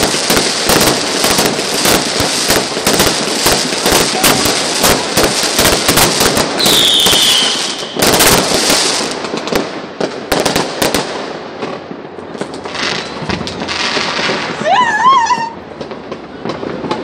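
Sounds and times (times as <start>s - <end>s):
fireworks cracking: 0.0s - 17.0s
firework falling whistle: 6.6s - 8.4s.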